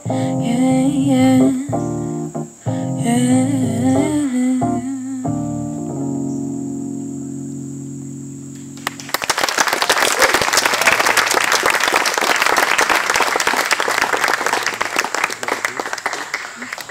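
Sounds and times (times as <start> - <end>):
band holding final chord: 5.9 - 9.7
audience applause: 8.8 - 16.9.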